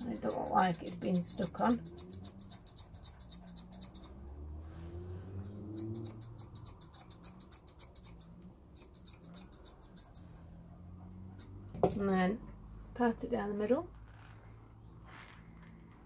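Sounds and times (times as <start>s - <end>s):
scissors snipping hair: 0.0s - 4.2s, 5.4s - 10.3s.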